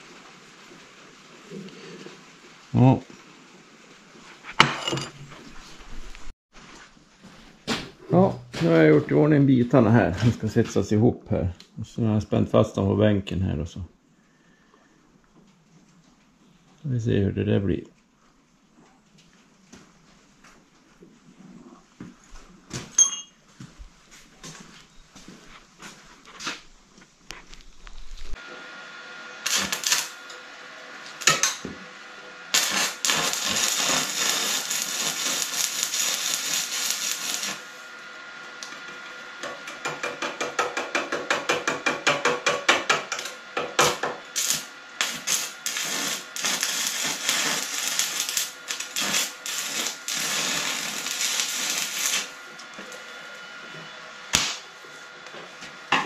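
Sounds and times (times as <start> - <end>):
electric arc welding crackling: 29.4 - 30.4, 32.5 - 38.0, 43.8 - 52.4
welding arc snaps: 29.4 - 30.4, 32.5 - 37.8, 39.4 - 52.4, 54.3 - 54.7.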